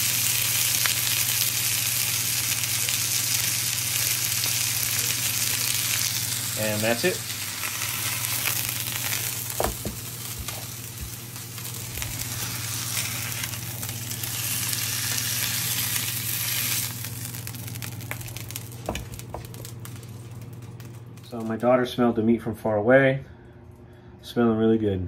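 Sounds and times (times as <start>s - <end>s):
meat sizzling in a skillet: 0.0s - 20.2s
steady low hum: 1.1s - 25.0s
sharp knocks in pan: 9.6s - 10.6s.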